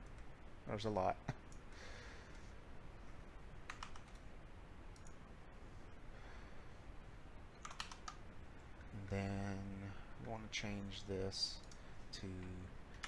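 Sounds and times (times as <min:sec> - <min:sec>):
faint room hiss: 0:00.0 - 0:13.0
keyboard clicks: 0:03.7 - 0:04.2, 0:05.0 - 0:05.2, 0:07.6 - 0:08.2.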